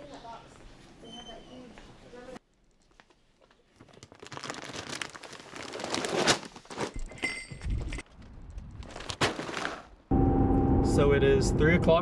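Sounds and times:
plastic bag rustling: 3.1s - 7.2s
low rumble: 10.1s - 12.0s.

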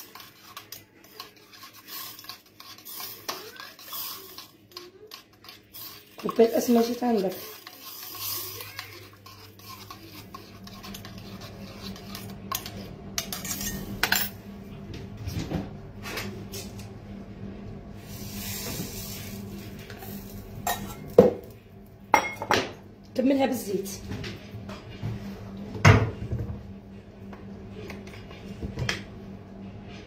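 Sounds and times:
dishes and utensils clinking: 0.0s - 14.4s, 20.0s - 21.5s, 22.2s - 22.8s
low steady hum: 4.3s - 30.0s.

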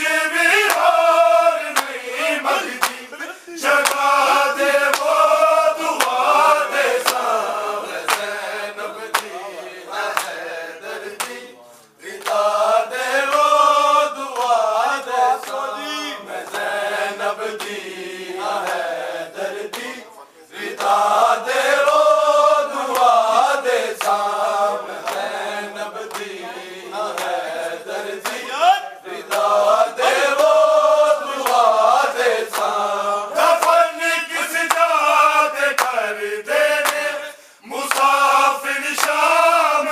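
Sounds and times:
men chanting a lament: 0.0s - 39.9s
hands slapping chests: 0.6s - 1.1s, 1.7s - 2.0s, 2.6s - 3.1s, 3.8s - 5.3s, 5.9s - 6.4s, 7.0s - 8.4s, 9.1s - 9.4s, 10.1s - 10.4s, 22.9s - 24.3s, 25.0s - 25.4s, 27.1s - 27.5s, 28.2s - 28.5s, 29.2s - 30.6s, 31.4s - 31.7s, 32.4s - 32.8s, 35.6s - 36.1s, 37.8s - 38.2s, 38.8s - 39.3s.

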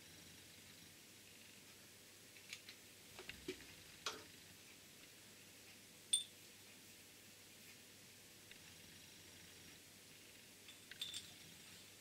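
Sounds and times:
metallic clink: 6.1s - 6.4s, 10.7s - 11.5s.

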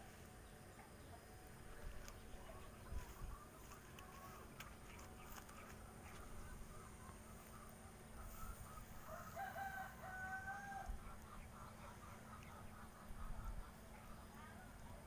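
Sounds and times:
rooster crowing faintly: 7.5s - 11.2s.

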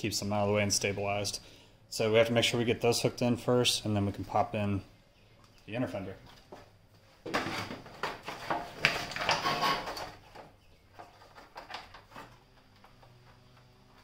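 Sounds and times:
plastic scraping against frame: 7.3s - 13.4s.

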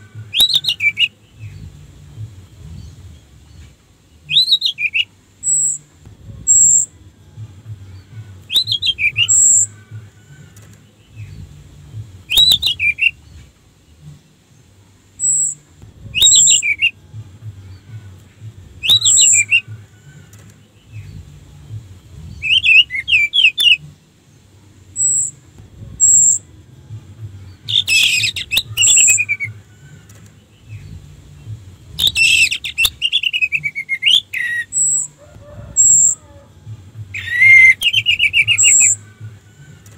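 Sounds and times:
thrush singing warbling phrases: 6.2s - 13.3s, 15.2s - 23.9s, 27.4s - 39.9s
high sharp bird notes: 22.1s - 24.0s, 27.6s - 29.8s, 31.9s - 36.3s, 37.1s - 39.2s.

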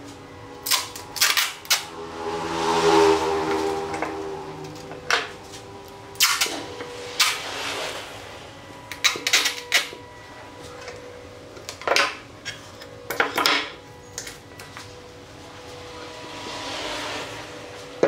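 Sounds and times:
packing tape ripping from roll: 0.6s - 1.9s, 6.2s - 6.6s.

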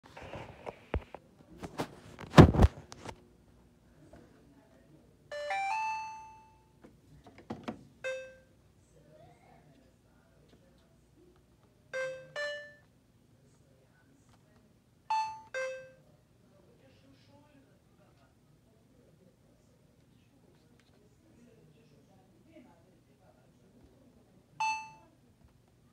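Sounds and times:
washer control panel chimes: 8.0s - 8.4s, 24.6s - 25.0s.

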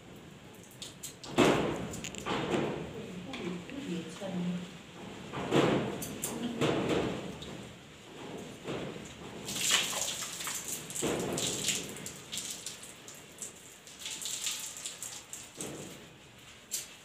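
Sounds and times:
water splashing onto concrete floor: 0.5s - 2.3s, 9.4s - 16.1s.

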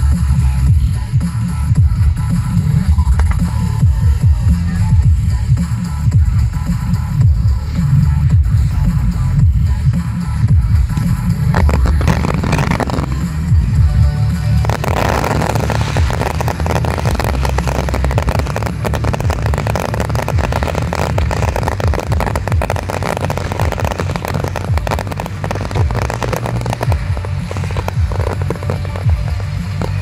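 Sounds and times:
fireworks crackling and popping: 0.0s - 30.0s
low rumble: 10.4s - 30.0s.

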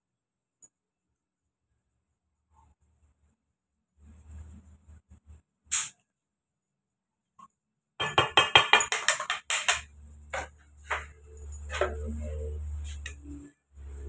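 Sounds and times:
metal kitchenware clattering: 8.0s - 12.0s.

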